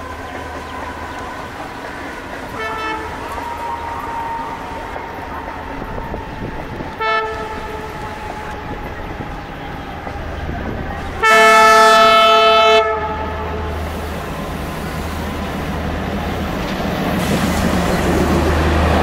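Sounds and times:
locomotive horn: 0.0s - 14.1s
diesel locomotive engine rumbling: 0.0s - 19.0s.

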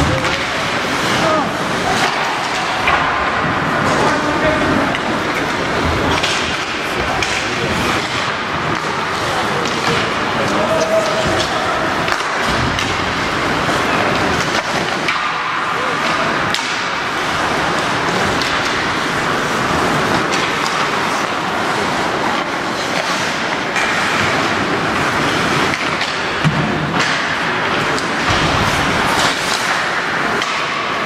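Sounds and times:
murmur of spectators: 0.0s - 31.0s
skates scraping ice: 0.0s - 31.0s
sticks and puck clacking: 0.0s - 31.0s.

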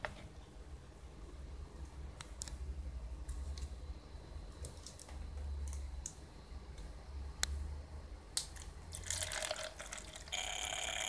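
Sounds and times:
high-pitched buzzer: 10.3s - 11.0s.

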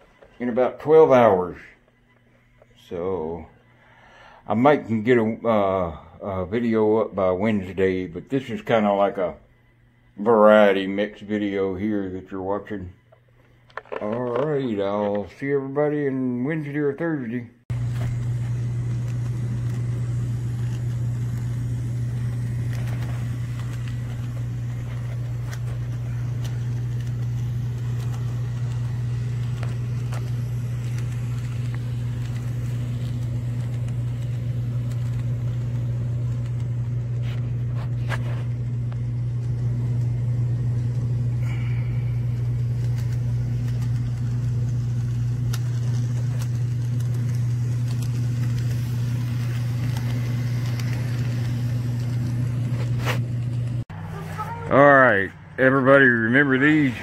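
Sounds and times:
model train humming: 17.7s - 52.9s.

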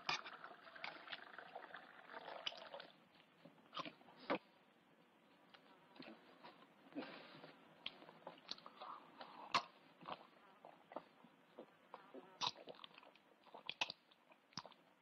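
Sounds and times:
man chewing and gulping: 7.9s - 15.0s.

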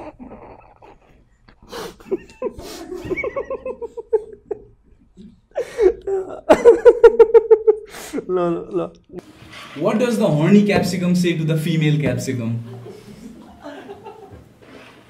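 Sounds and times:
breathy stifled laughter: 0.0s - 4.7s, 5.5s - 8.9s
man laughing hard: 5.8s - 8.8s, 12.6s - 14.4s.

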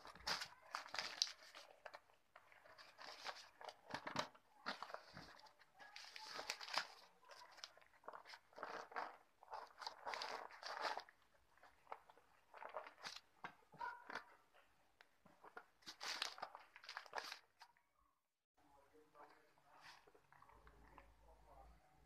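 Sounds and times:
paper and foil crinkling: 0.0s - 14.5s, 15.2s - 17.7s.

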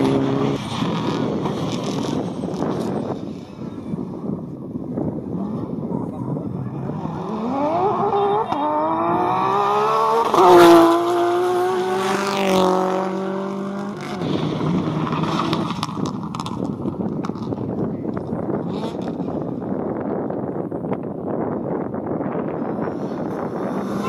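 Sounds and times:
rally car engine accelerating: 5.3s - 17.6s.

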